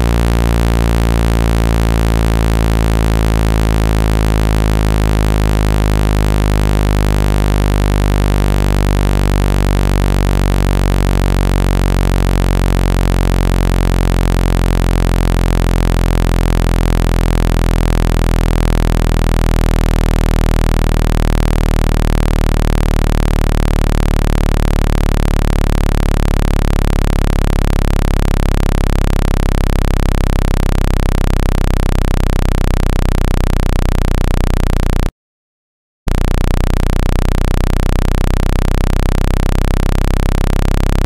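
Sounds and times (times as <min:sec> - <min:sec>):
low buzzy electronic tone: 0:00.0 - 0:35.1, 0:36.1 - 0:41.0.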